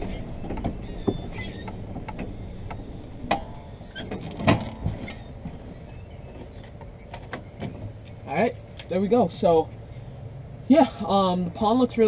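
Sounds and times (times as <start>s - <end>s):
clicks and knocks: 0.0s - 5.6s
golf cart rolling: 0.0s - 10.3s.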